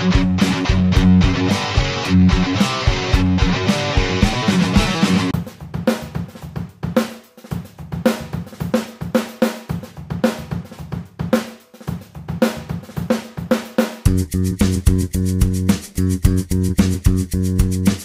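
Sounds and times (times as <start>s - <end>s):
bass and guitar notes: 0.0s - 5.4s, 14.1s - 18.0s
drum kit beat: 0.0s - 18.0s.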